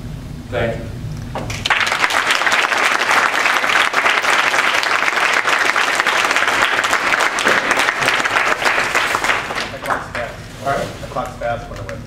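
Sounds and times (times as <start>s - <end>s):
audience applauding: 1.5s - 10.4s.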